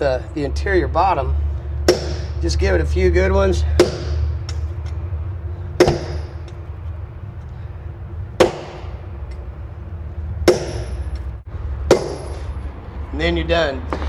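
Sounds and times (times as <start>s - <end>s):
hammer striking metal bolt: 5.8s - 6.6s.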